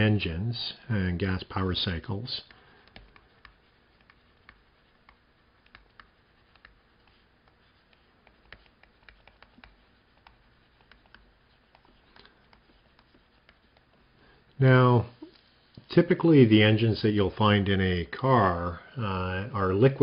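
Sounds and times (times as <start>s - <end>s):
pen writing on paper: 2.8s - 14.1s.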